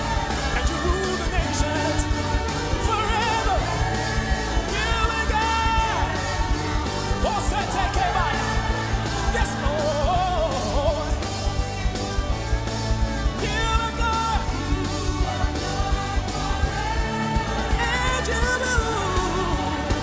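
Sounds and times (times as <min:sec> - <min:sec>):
choir singing with band: 0:00.0 - 0:20.0.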